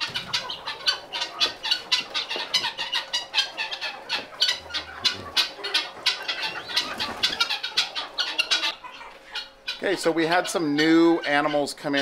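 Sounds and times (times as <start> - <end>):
chickens and guinea fowl calling: 0.0 - 12.0.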